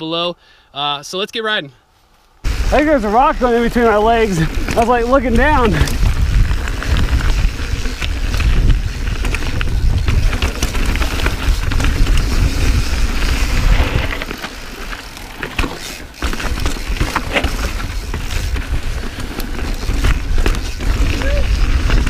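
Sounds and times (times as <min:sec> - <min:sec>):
bike rattling on bumps: 0:02.5 - 0:22.0
wind rumble on microphone: 0:04.1 - 0:14.3.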